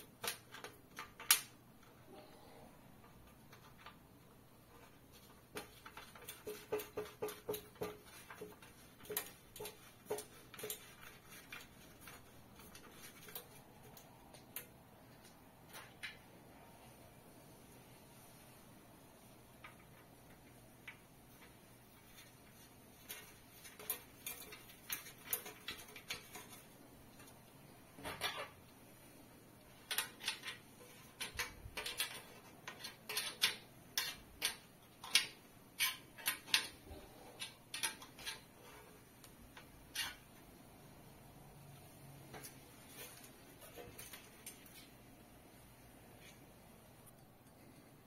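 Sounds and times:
spanner on a nut: 29.8 - 36.8.

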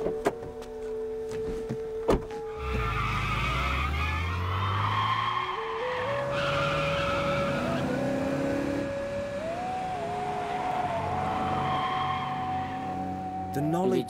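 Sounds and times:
car door slamming: 2.0 - 2.3
car engine revving: 2.6 - 13.4.

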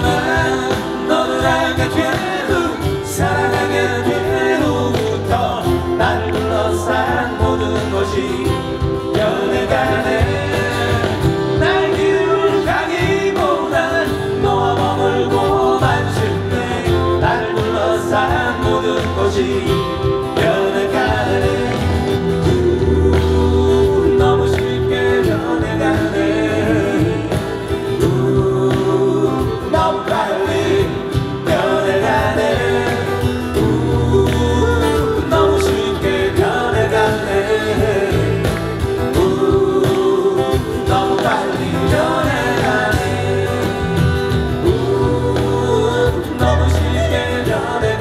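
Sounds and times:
strummed acoustic guitars: 0.0 - 48.0
two men singing together: 0.0 - 48.0
low bass: 14.1 - 29.9, 30.5 - 48.0.

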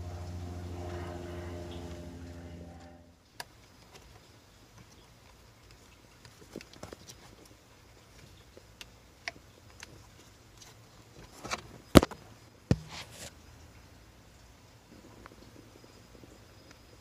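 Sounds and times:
knock: 12.7 - 13.0.

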